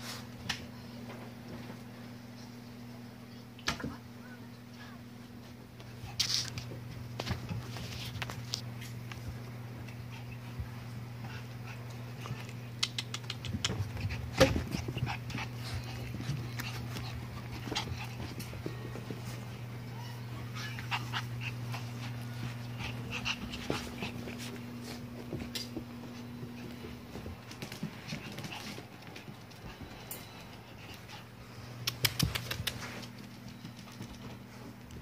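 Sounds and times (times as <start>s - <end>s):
puppies scuffling and knocking: 5.4s - 31.2s.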